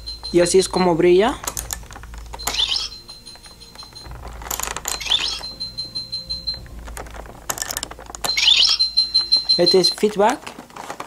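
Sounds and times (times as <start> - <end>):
high beep tone: 0.0 - 1.5, 2.2 - 6.9, 8.2 - 10.0
plastic clicks: 1.4 - 5.6
toy warbling electronic sound: 2.3 - 4.1, 4.9 - 5.8, 8.2 - 9.8.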